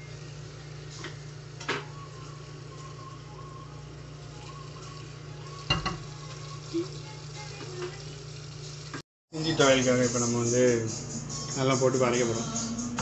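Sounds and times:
tap water running into a pot: 4.2s - 9.0s.

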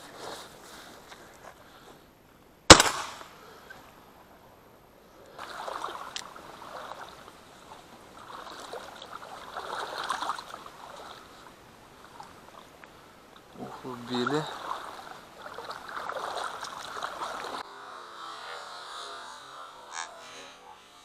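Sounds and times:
shotgun shot: 2.7s - 3.4s
water splashing among reeds: 5.3s - 17.6s.

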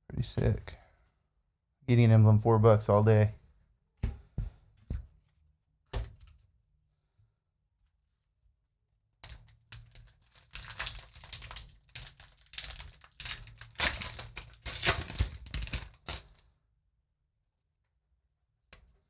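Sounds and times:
foil wrapper crinkling and tearing: 9.2s - 16.4s.

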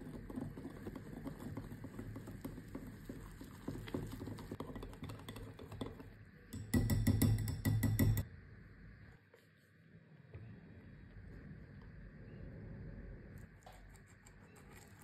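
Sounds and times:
whisk clicking against glass bowl: 3.9s - 8.2s.

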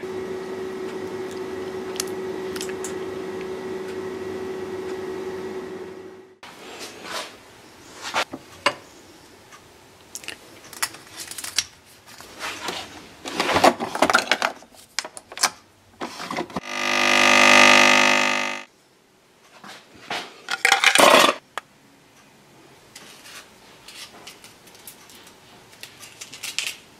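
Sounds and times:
coffee machine pump buzzing: 16.6s - 18.7s.

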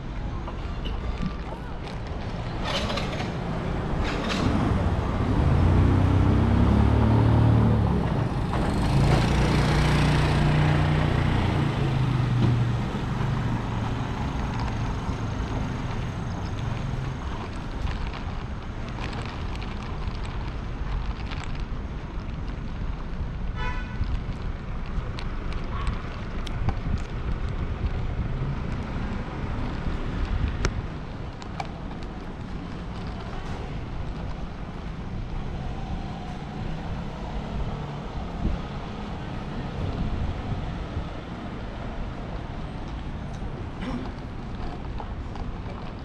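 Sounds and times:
traffic noise: 0.0s - 46.0s
wind rumble on microphone: 0.0s - 46.0s.

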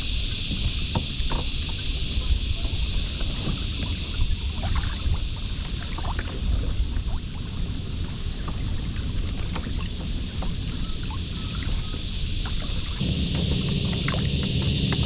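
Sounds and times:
wind buffeting microphone: 0.0s - 15.0s
ripples lapping against kayak hull: 0.2s - 15.0s
steady high hiss: 11.3s - 15.0s.

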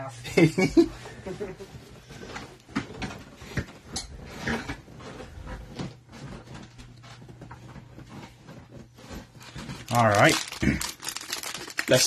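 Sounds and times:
cards knocking and rustling: 9.2s - 12.0s.

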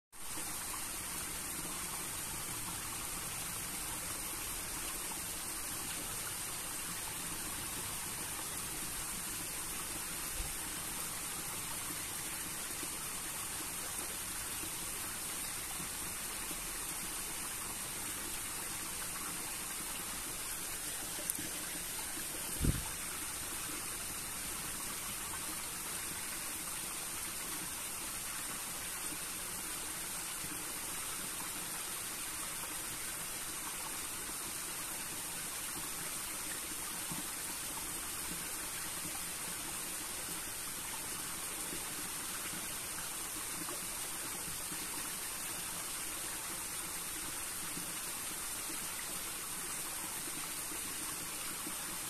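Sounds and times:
stream trickling over rocks: 0.2s - 52.0s
soft low thump: 22.5s - 23.0s.

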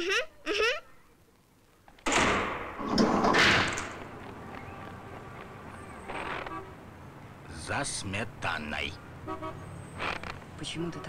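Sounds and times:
door banging shut: 2.0s - 4.2s.

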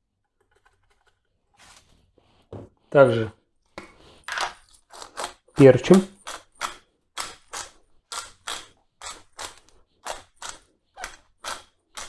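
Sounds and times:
pepper mill grinding: 6.2s - 12.0s.

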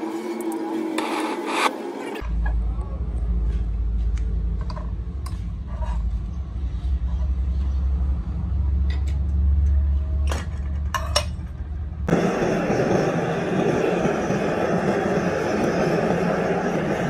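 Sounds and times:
steady low hum: 11.5s - 17.0s
loud rushing noise: 12.1s - 17.0s.

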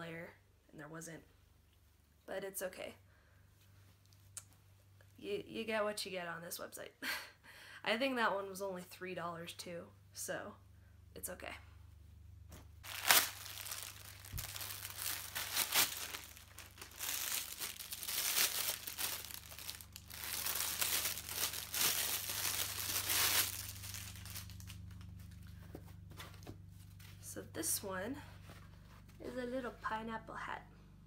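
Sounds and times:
plastic package crinkling: 12.8s - 25.2s.

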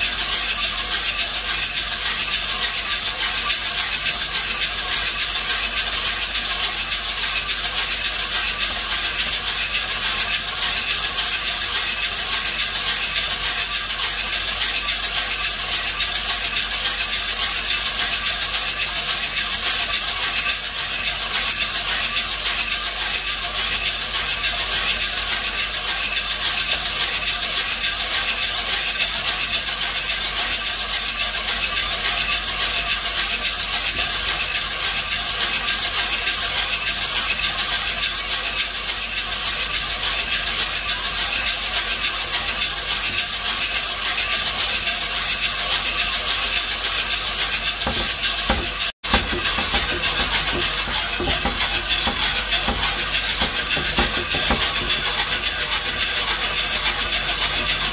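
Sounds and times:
coffee beans rattling in drum roaster: 0.0s - 57.9s.

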